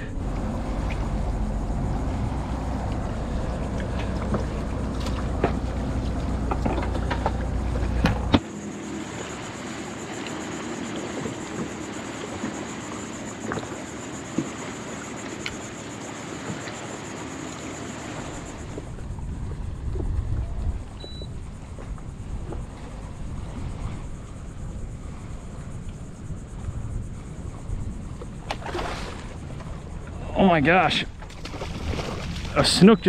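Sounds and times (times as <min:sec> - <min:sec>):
low wind rumble on microphone: 0:00.0 - 0:08.4, 0:18.0 - 0:32.6
faint high whine: 0:00.0 - 0:33.0.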